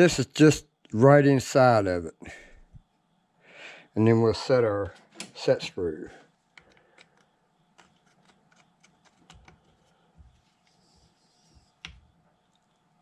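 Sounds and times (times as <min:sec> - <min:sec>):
hex key clicks and taps: 0:06.5 - 0:09.8.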